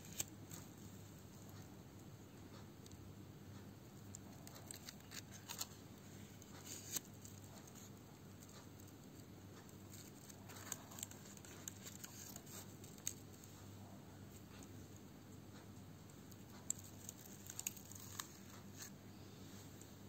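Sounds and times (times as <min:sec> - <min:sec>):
small clicks and rustles: 0:00.0 - 0:13.7, 0:15.5 - 0:19.0
faint low hum: 0:00.0 - 0:20.0.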